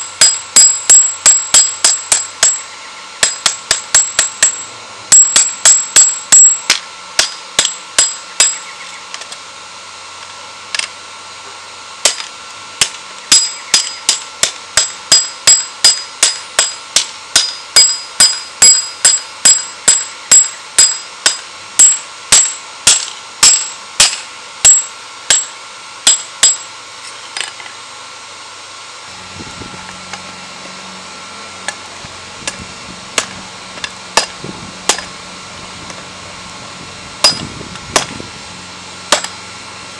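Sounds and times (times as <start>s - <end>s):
hammer ringing on anvil: 0.0s - 8.7s, 12.8s - 26.8s, 37.2s - 37.4s
low steady hum: 0.0s - 39.9s.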